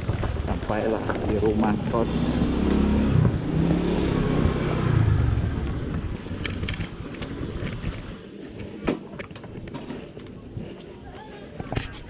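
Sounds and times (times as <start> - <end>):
scooter engine humming: 1.6 - 8.8.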